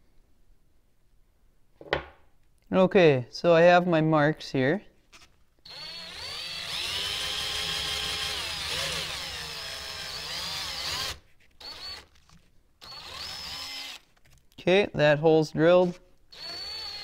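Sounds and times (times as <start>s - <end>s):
electric drill boring into wood: 5.7s - 12.1s, 12.8s - 14.1s, 16.3s - 17.0s.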